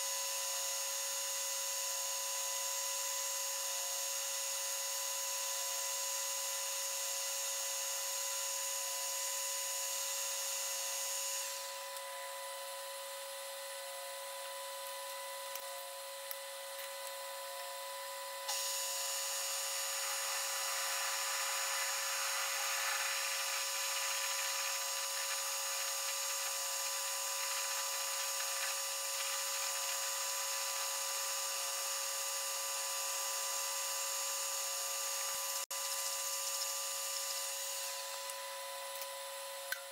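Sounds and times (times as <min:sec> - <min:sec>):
lathe machine whine: 0:18.4 - 0:38.7
drill scraping cutting noise: 0:18.5 - 0:38.2.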